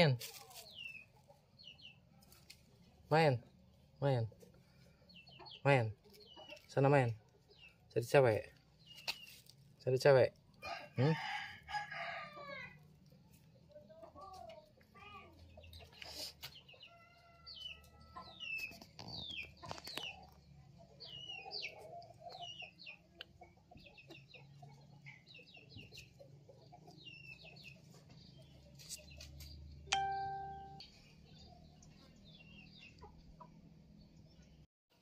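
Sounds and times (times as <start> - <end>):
chickens clucking: 0.0 - 9.8, 10.4 - 34.5
small birds chirping: 0.0 - 35.0
ringing chime-like tone: 29.9 - 30.8.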